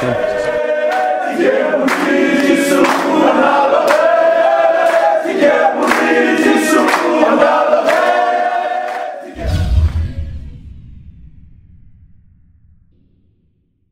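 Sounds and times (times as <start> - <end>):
men singing in harmony: 0.0 - 9.4
hands clapping: 0.8 - 9.3.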